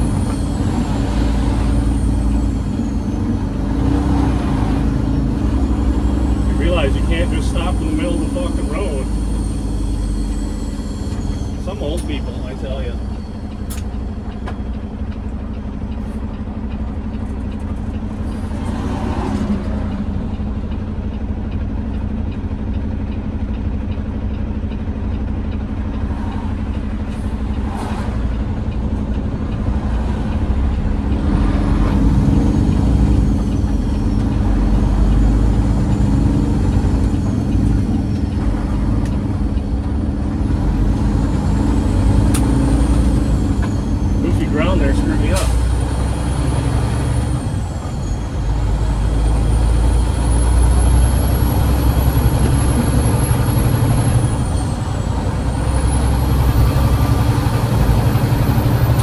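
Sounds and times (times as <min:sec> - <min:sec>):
diesel truck engine drone: 0:00.0 - 0:59.0
faint wavering high whistle: 0:07.8 - 0:13.8.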